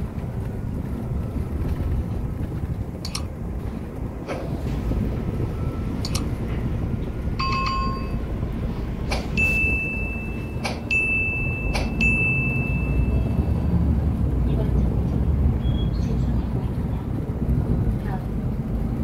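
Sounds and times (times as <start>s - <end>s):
bus engine and road rumble: 0.0s - 19.0s
clicks: 3.0s - 3.3s, 6.0s - 6.3s, 11.7s - 12.0s
high steady ringing tone: 7.4s - 8.3s, 9.4s - 13.7s
short chime: 9.4s - 13.5s.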